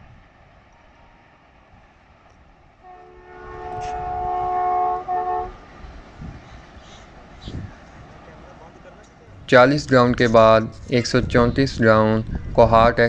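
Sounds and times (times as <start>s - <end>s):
diesel locomotive horn blasts: 2.8s - 6.0s.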